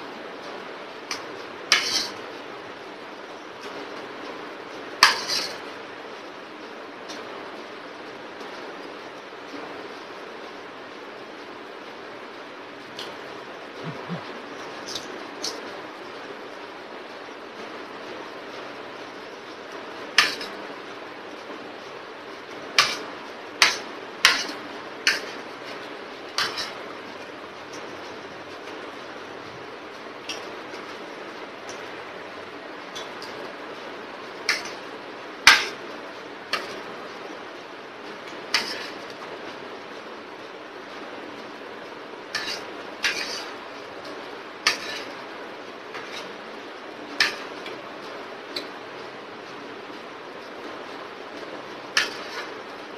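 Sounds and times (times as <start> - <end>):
steady background hiss: 0.0 - 52.9.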